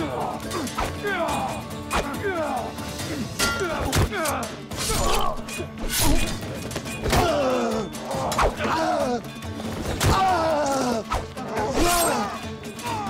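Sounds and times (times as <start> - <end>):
dramatic score music: 0.0 - 13.0
sword strikes: 3.4 - 6.4
man crying in pain: 7.1 - 9.4, 10.2 - 13.0.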